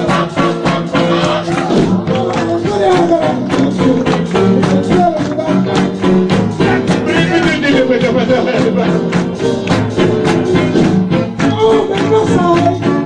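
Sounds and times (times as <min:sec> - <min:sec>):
jump blues band playing: 0:00.0 - 0:13.0
person scat-singing: 0:10.2 - 0:13.0.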